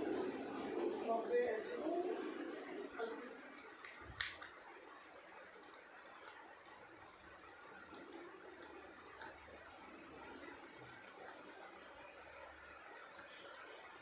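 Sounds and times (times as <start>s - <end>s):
sharp crack: 3.8s - 4.6s.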